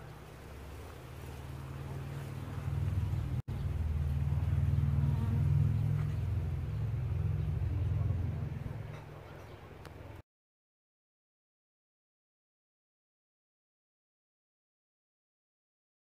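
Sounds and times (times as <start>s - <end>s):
low droning hum: 0.0s - 10.2s.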